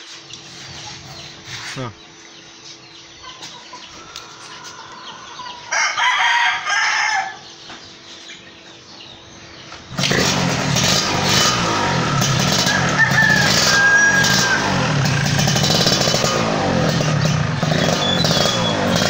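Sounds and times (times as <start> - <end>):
rooster crowing: 3.9 - 7.5, 12.3 - 15.6
loud steady sound: 9.9 - 19.0.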